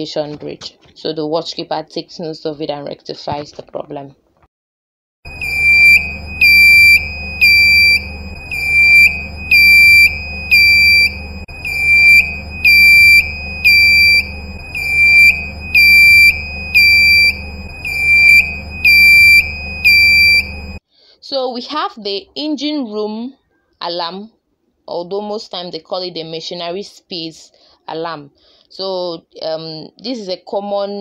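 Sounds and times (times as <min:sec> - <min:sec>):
low hum: 0:05.3 - 0:20.8
pulsing high-pitched alarm tone: 0:05.3 - 0:20.8.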